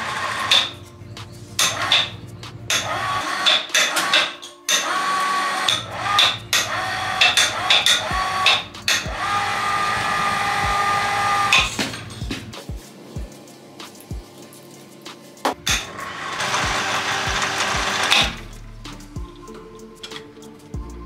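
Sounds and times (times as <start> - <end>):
electric hoist motor humming: 1.6 - 12.0, 15.6 - 18.6.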